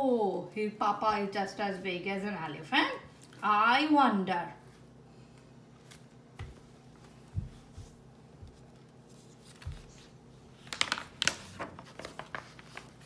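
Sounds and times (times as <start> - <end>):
soft bumps of hands on book: 6.4 - 8.8
paper page turning: 8.5 - 13.0.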